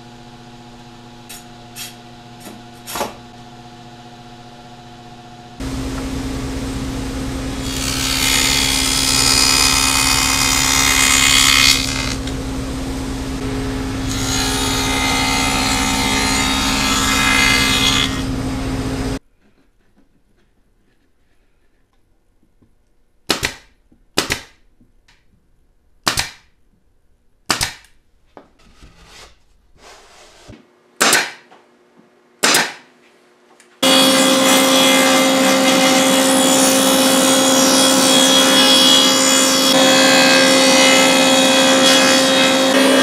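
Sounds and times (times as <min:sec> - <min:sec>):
machine humming: 0:00.0 - 0:19.2, 0:33.8 - 0:43.0
pneumatic nailer shots: 0:31.0 - 0:31.4, 0:32.4 - 0:32.8.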